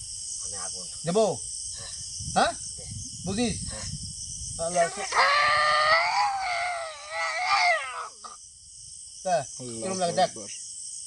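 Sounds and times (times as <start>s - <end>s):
crickets chirring: 0.0s - 11.0s
person's wavering cry: 5.2s - 8.2s.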